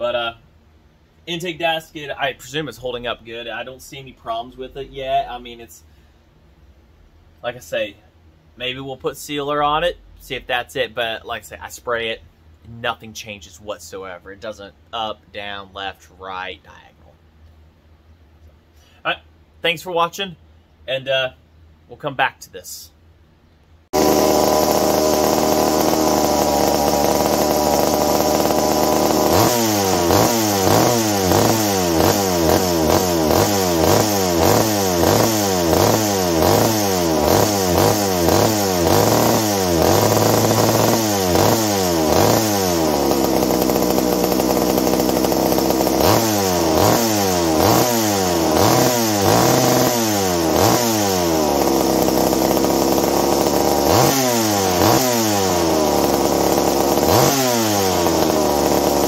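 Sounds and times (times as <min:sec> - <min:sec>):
chainsaw engine revving: 0:23.9 - 0:59.0.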